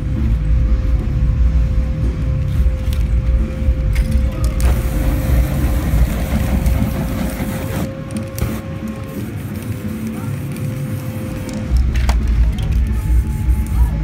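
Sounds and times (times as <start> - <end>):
low rumble: 0.0 - 8.6
aerosol flame hissing: 4.6 - 11.6.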